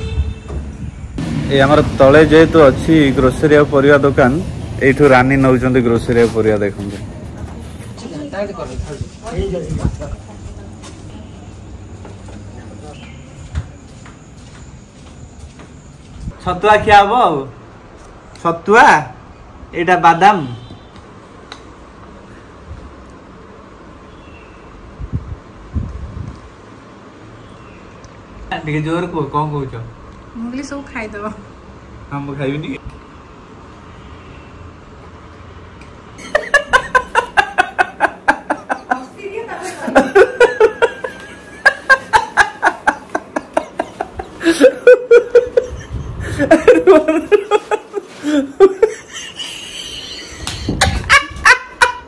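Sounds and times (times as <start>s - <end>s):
people laughing: 36.2s - 52.0s.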